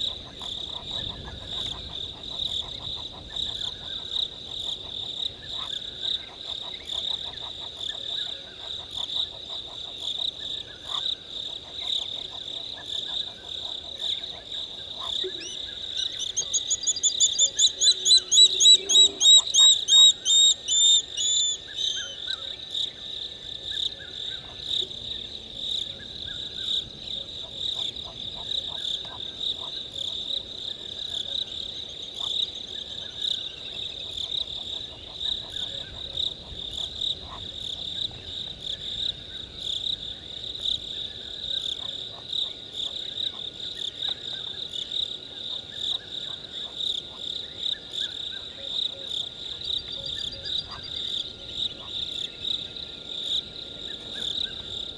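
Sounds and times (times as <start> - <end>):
crickets trilling: 0.0 - 54.9
bird whistling notes: 16.4 - 22.2.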